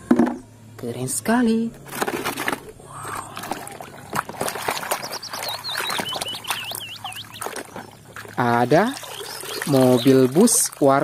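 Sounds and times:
water sloshing in a plastic basin: 1.8 - 11.0
bird swooping whistles: 5.0 - 7.6.

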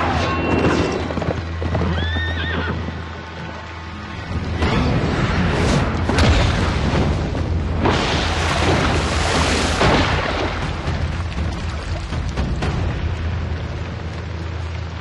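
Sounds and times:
background music: 0.0 - 15.0
booming impacts: 4.5 - 14.0
rush of spraying water: 5.4 - 15.0.

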